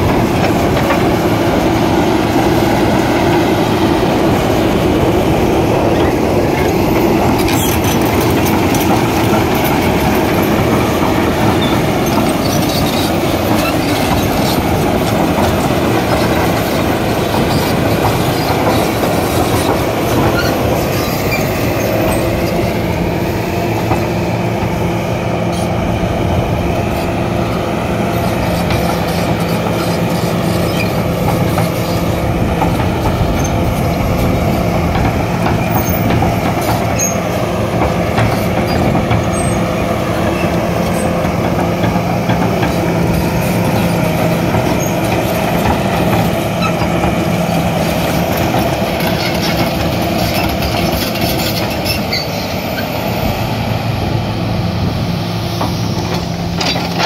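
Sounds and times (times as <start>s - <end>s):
excavator engine and hydraulic whine: 0.0s - 57.0s
metal clanks and rattles: 55.6s - 57.0s.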